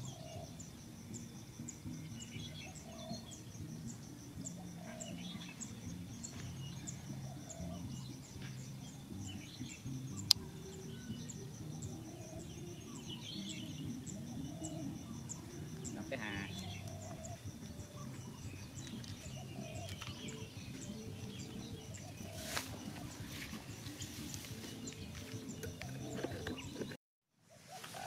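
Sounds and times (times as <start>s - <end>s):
birds chirping: 0.0s - 27.0s
insects chirping: 0.0s - 28.0s.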